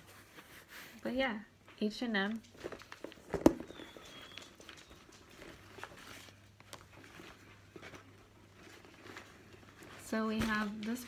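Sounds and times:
bag rustling: 0:02.5 - 0:11.0.

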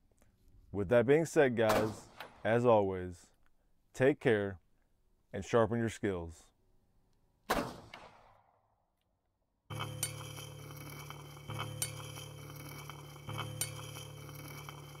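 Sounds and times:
steady low drone: 0:09.7 - 0:15.0.

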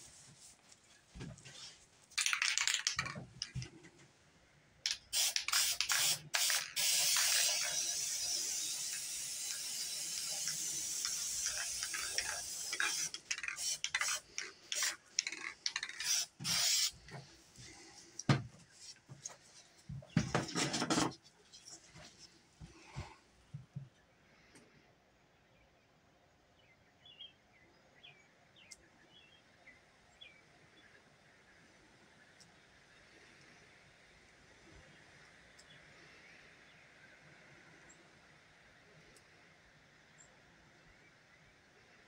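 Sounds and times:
spray can taps: 0:04.9 - 0:07.8
aerosol spray can hissing: 0:04.9 - 0:17.0.

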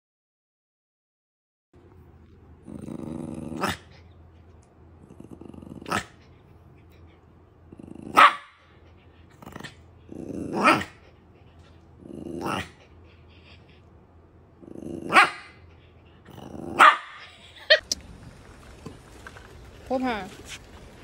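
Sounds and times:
dog growling and barking: 0:02.2 - 0:13.6, 0:14.4 - 0:17.8.

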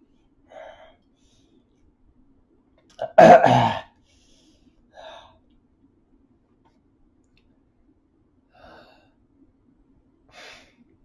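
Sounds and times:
man's harsh throat noise: 0:03.0 - 0:03.9.

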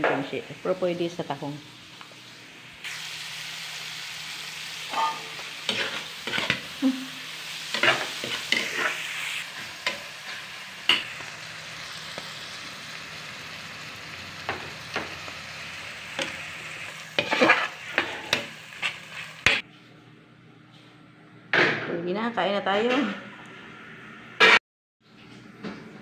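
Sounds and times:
mussels sizzling in a pan: 0:00.1 - 0:19.6
metal spoon scraping a pan: 0:04.9 - 0:06.7, 0:07.7 - 0:11.1, 0:17.1 - 0:19.6.

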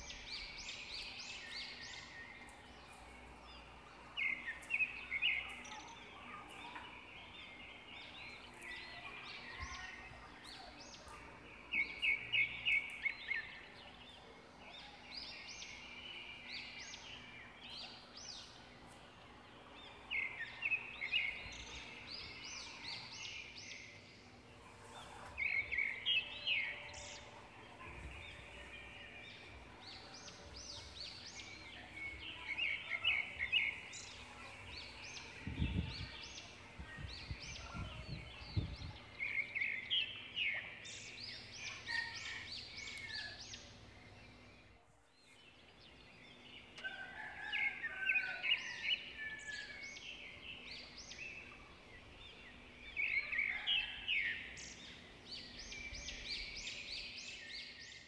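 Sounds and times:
birds chirping: 0:00.0 - 0:58.0.

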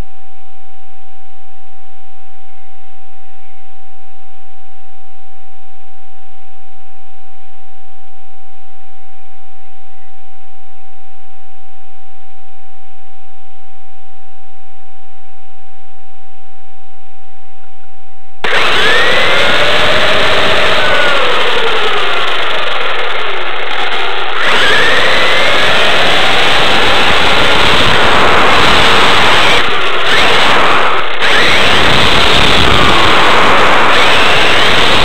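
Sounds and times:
electric motor whine: 0:18.4 - 0:35.0.

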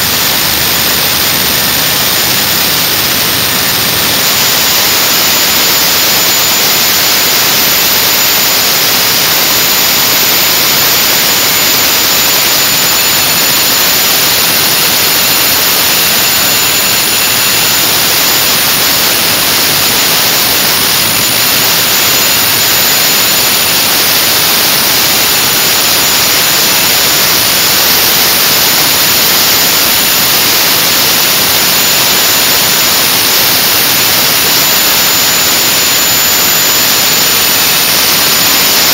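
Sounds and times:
engine rushing with high whine: 0:00.0 - 0:38.9.

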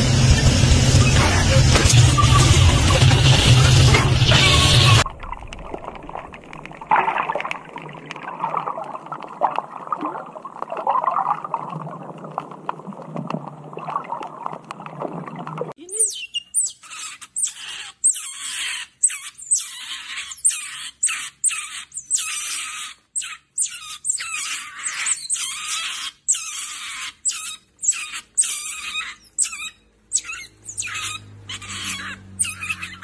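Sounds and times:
otter pup squealing: 0:01.0 - 0:05.1, 0:15.9 - 0:33.0.

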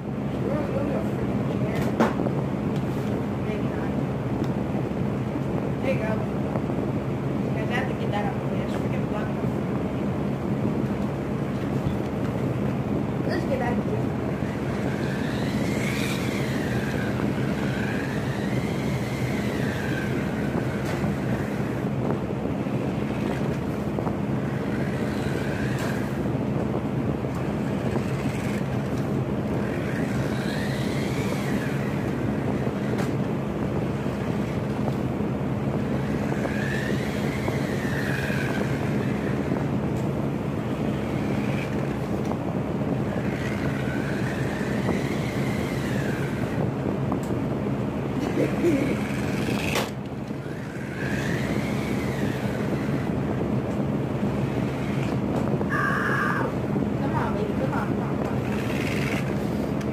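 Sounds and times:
steady hum and hiss: 0:00.0 - 0:59.9
toy car motor whining: 0:13.3 - 0:42.4, 0:43.0 - 0:47.3, 0:48.2 - 0:53.5, 0:54.1 - 0:59.9.

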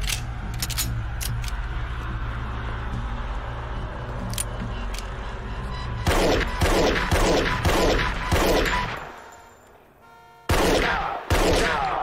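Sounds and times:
echoing pistol shots: 0:10.5 - 0:12.0.

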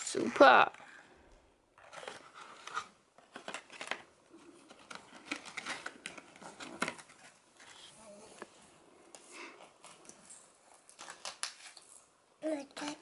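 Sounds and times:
paper cards rustling and tapping: 0:01.8 - 0:08.6, 0:10.8 - 0:11.9.

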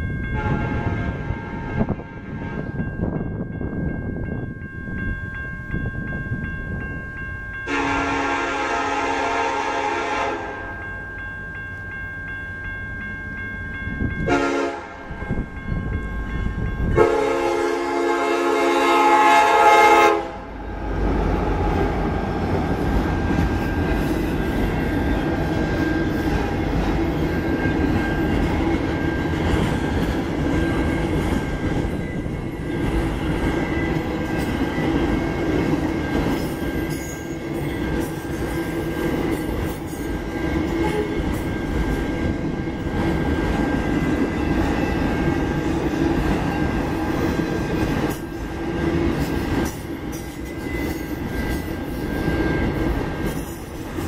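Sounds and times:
train passing rumble: 0:00.0 - 0:54.0
locomotive horn blasts: 0:00.4 - 0:02.7, 0:07.7 - 0:10.8, 0:14.2 - 0:15.1, 0:17.0 - 0:20.5, 0:40.8 - 0:41.2.

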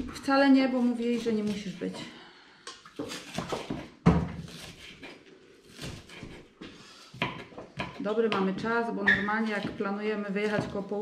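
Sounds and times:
knife chopping on wooden board: 0:03.0 - 0:06.5, 0:07.1 - 0:08.7.

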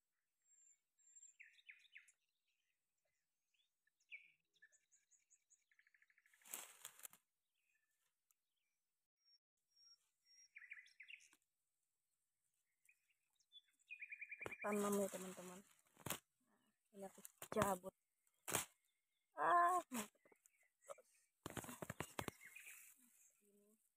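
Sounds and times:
birds chirping: 0:09.7 - 0:11.4, 0:12.6 - 0:15.6, 0:18.7 - 0:23.5.

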